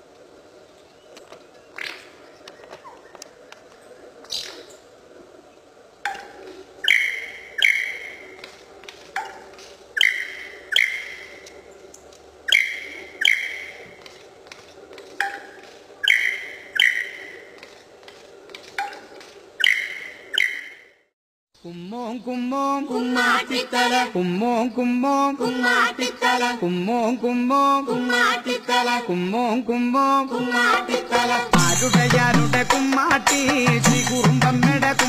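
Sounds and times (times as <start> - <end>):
lyrebird calling: 1.5 - 11.8, 12.4 - 14.2, 15.2 - 17.7, 18.8 - 20.9.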